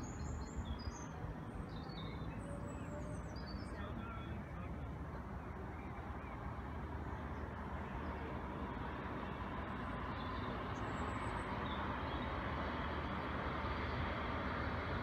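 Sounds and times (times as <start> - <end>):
faint train whine: 0.0 - 15.0
distant train rumbling: 4.1 - 15.0.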